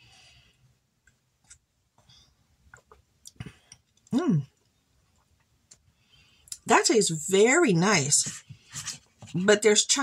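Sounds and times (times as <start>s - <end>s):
mouth clicks and swallows: 1.5s - 4.1s.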